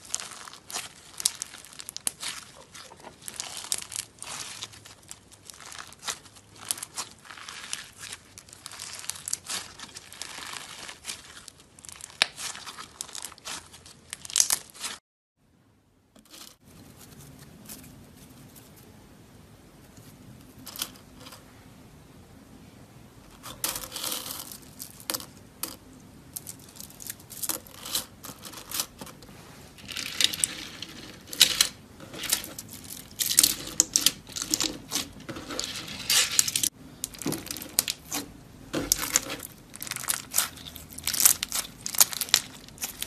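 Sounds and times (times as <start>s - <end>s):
slime crackling and popping: 0.0s - 15.0s, 32.4s - 43.0s
faint low hum: 15.4s - 43.0s.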